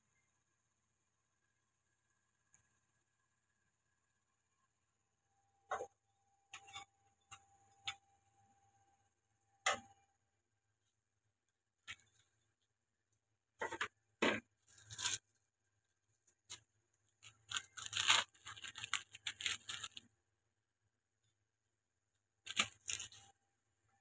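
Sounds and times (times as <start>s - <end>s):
food packaging rustling and tearing: 14.6s - 15.3s, 16.3s - 20.0s, 22.5s - 23.3s.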